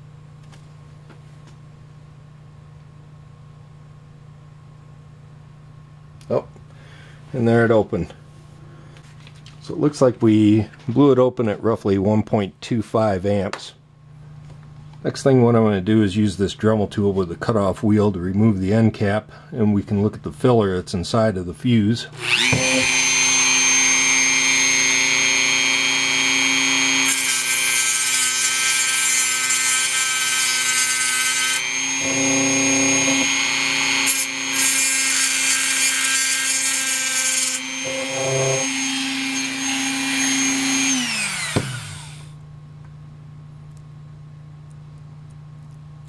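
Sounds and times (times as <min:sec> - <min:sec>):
rotary tool grinding metal: 0:22.2 - 0:42.2
rotary tool motor winding down: 0:22.2 - 0:42.4.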